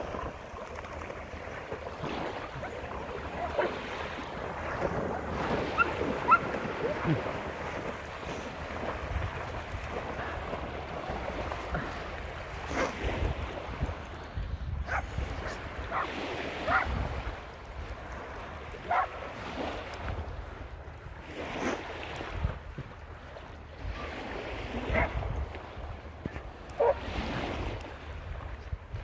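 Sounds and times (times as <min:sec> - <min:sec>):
small waves lapping: 0:00.0 - 0:29.0
wind buffeting microphone: 0:00.0 - 0:29.0
dog barking: 0:03.3 - 0:03.8, 0:05.8 - 0:06.4, 0:14.9 - 0:16.1, 0:16.7 - 0:16.9, 0:18.9 - 0:19.2, 0:24.9 - 0:25.1, 0:26.8 - 0:27.0.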